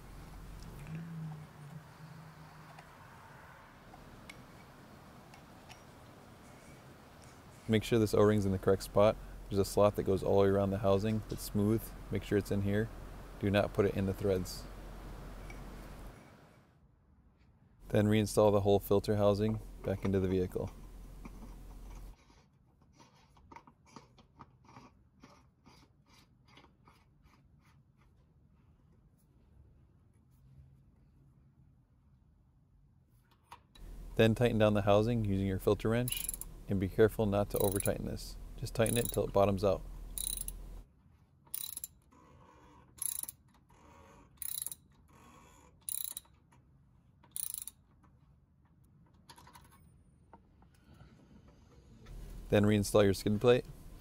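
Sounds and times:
hand ratchet clicking: 36.1s - 36.6s, 37.5s - 38.0s, 38.8s - 39.3s, 40.1s - 40.7s, 41.6s - 41.9s, 43.0s - 43.4s, 44.4s - 44.8s, 45.9s - 46.3s, 47.3s - 47.8s
oil filter housing clicking: 37.5s - 38.0s.

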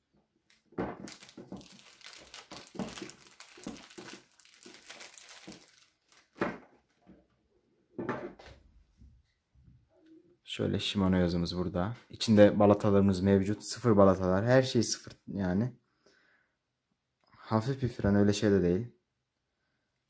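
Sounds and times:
plastic packaging crinkling: 0.9s - 6.7s.

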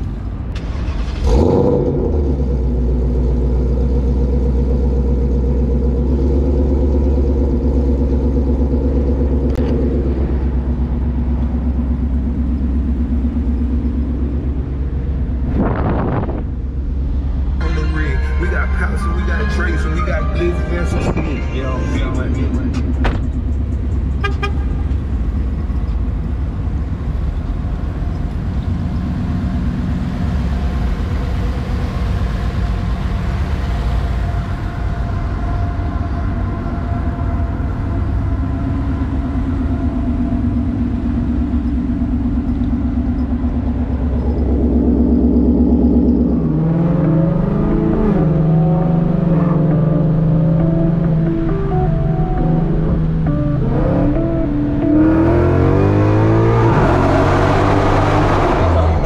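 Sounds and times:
car engine idling: 0.0s - 56.5s
wavering higher engine tone: 2.4s - 59.0s.

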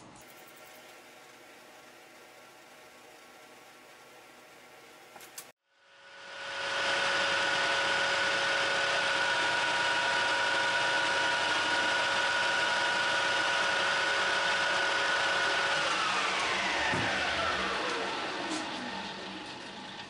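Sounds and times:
metal lathe whine: 6.0s - 20.0s.

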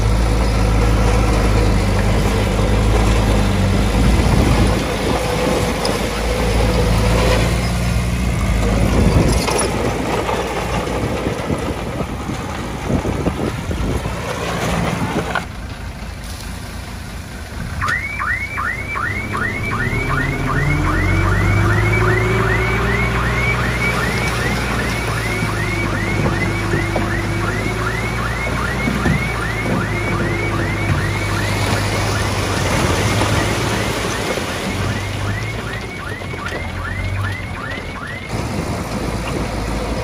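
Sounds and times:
heavy machinery clattering: 0.0s - 15.5s
reversing alarm chirps: 17.8s - 38.3s
engine revving: 19.1s - 35.7s.

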